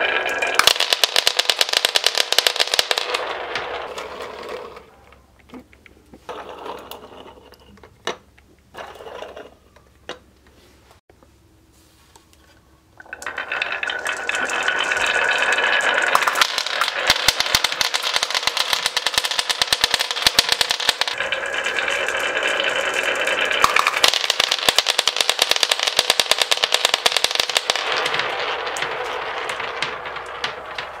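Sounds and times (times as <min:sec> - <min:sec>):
marbles clattering down wooden track: 0:00.0 - 0:04.9, 0:13.0 - 0:31.0.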